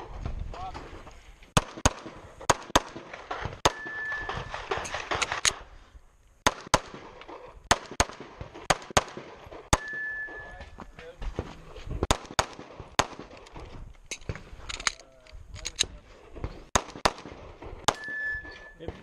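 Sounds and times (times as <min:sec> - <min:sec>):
pistol shots in quick pairs: 0:01.6 - 0:05.6, 0:06.4 - 0:10.1, 0:12.0 - 0:13.4, 0:16.4 - 0:19.0.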